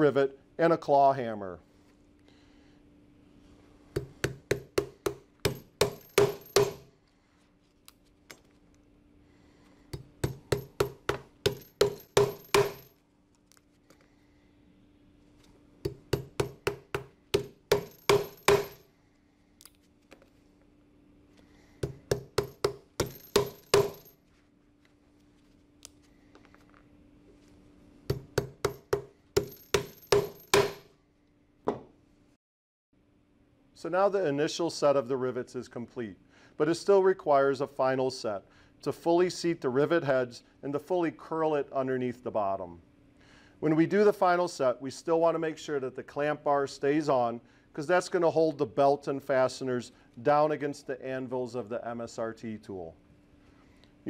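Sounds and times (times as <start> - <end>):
hammer striking metal rivets: 4.0 - 6.9, 10.0 - 12.9, 15.8 - 18.8, 21.8 - 24.1, 28.1 - 30.9.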